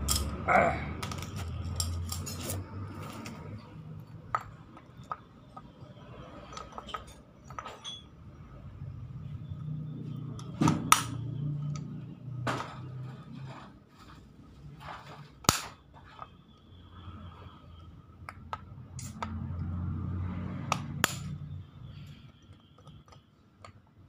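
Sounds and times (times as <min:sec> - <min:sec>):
metal parts clinking and tapping: 0:00.0 - 0:08.2, 0:18.2 - 0:19.7, 0:20.7 - 0:23.9.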